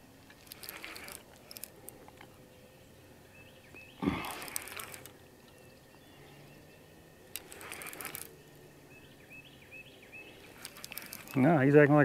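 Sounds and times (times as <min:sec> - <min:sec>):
small birds chirping: 0:00.0 - 0:12.0
clicking rustle: 0:00.2 - 0:02.4, 0:03.7 - 0:05.7, 0:07.2 - 0:08.6, 0:10.3 - 0:11.5.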